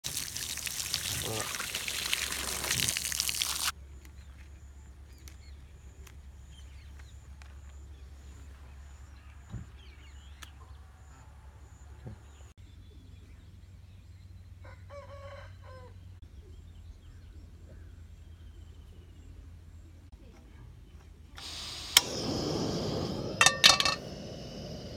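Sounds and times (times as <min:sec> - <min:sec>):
water pouring and splashing: 0:00.0 - 0:03.7
rooster crowing: 0:14.6 - 0:15.9.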